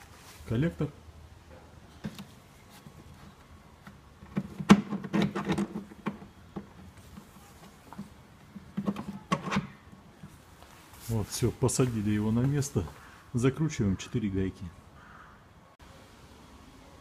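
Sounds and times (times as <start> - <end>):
plastic reservoir knocking and scraping: 2.0 - 9.8.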